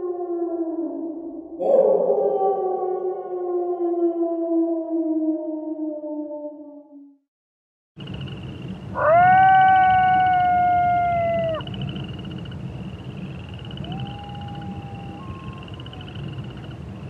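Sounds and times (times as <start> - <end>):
wolf howling: 8.9 - 11.7, 13.8 - 16.1.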